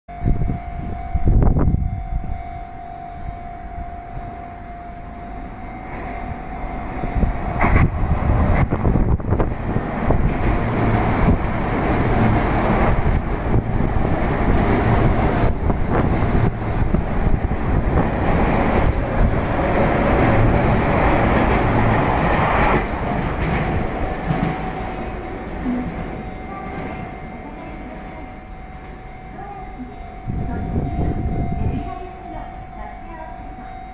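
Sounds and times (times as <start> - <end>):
electric train passing: 0.1 - 33.9
steady tone: 0.1 - 33.9
train wheels clattering over rails: 7.6 - 27.3.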